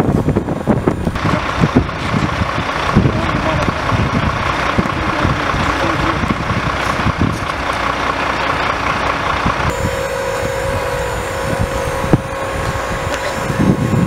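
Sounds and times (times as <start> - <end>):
wind rumbling on microphone: 0.0 - 7.9, 9.3 - 14.0
truck engines running: 0.0 - 14.0
held tone: 9.7 - 14.0
rapid electronic beeping: 9.7 - 14.0.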